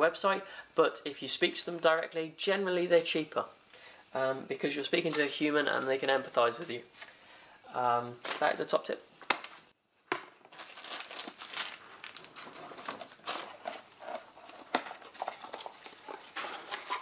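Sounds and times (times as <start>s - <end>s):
packaging crinkling and rustling: 10.4s - 17.0s.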